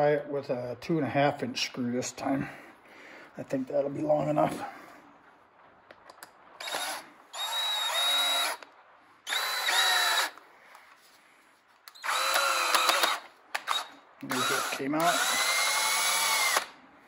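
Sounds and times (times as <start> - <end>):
power drill driving screw: 6.6 - 8.6, 9.3 - 10.4, 11.9 - 16.7.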